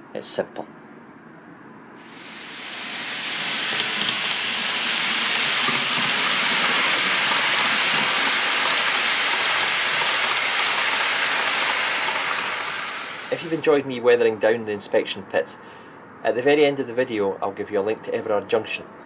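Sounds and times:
model train rumbling: 2.0s - 14.3s.

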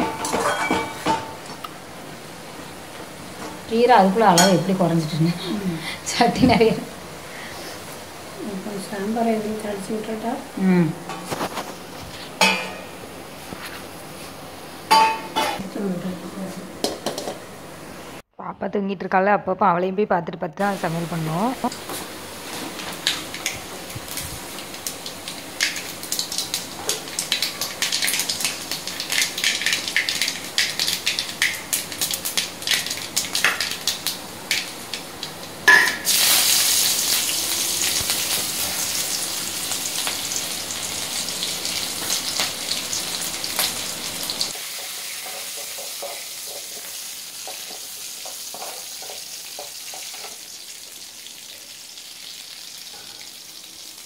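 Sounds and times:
loud sizzle in hot oil: 0.0s - 10.7s, 20.6s - 54.0s
greens crackling in a pan: 20.7s - 54.0s.

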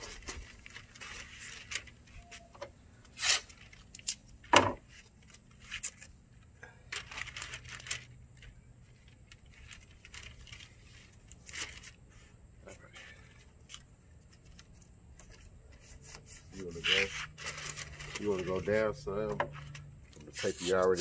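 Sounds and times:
tape tearing: 0.0s - 4.3s, 4.9s - 6.2s, 14.4s - 21.0s
paper crinkling: 0.0s - 6.2s, 6.9s - 12.3s, 13.3s - 21.0s.

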